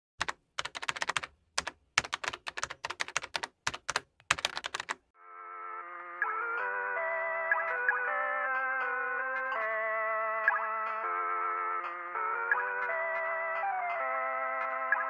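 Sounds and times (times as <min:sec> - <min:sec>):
computer keyboard typing: 0:00.2 - 0:05.0.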